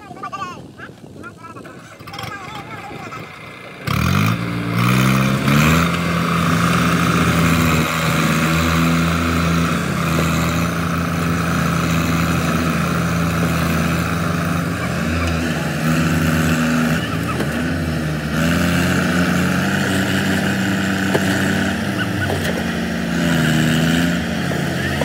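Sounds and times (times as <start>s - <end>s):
tractor diesel engines under load: 0.0s - 25.0s.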